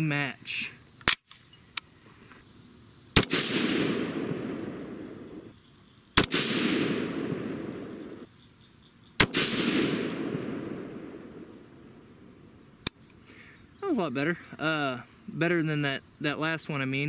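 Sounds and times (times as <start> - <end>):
rifle shots echoing: 3.2 - 5.5, 6.2 - 8.3, 9.2 - 12.0.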